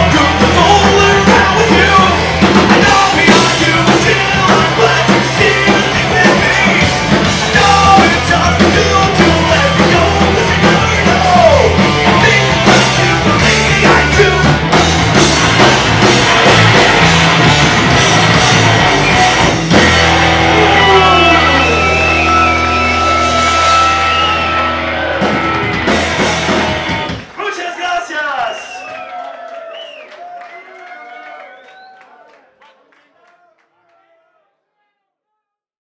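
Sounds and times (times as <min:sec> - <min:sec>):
shouted vocals: 0:00.0 - 0:14.6, 0:20.2 - 0:26.0, 0:27.4 - 0:35.1
live punk band playing: 0:00.0 - 0:27.6.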